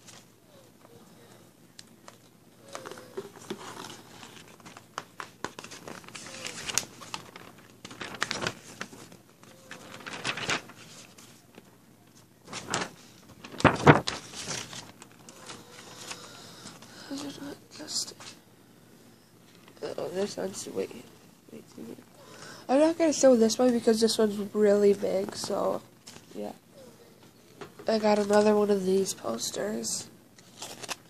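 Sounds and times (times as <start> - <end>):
paper rustling and crinkling: 0.0 - 1.0, 1.9 - 18.4, 22.8 - 26.5, 27.8 - 29.4, 30.4 - 31.0.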